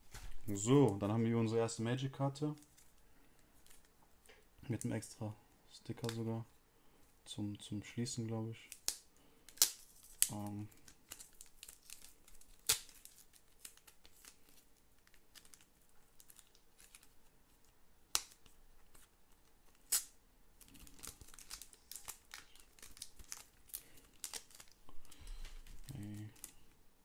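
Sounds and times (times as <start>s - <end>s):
plastic sleeve crinkling: 8.6s - 26.8s.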